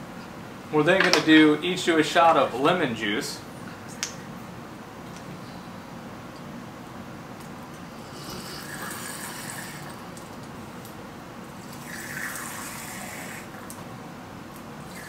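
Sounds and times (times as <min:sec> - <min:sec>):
juice squirting from squeeze bottle: 0:11.6 - 0:13.5.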